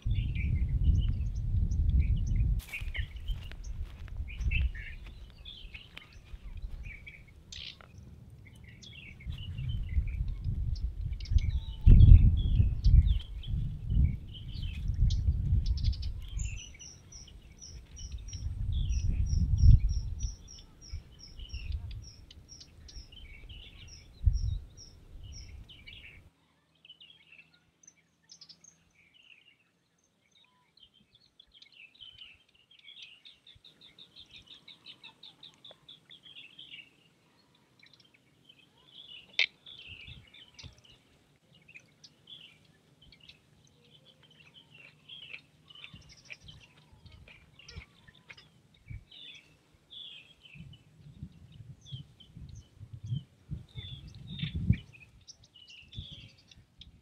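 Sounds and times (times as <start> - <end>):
low rumble: 0.0 - 7.4
small birds chirping: 0.0 - 57.0.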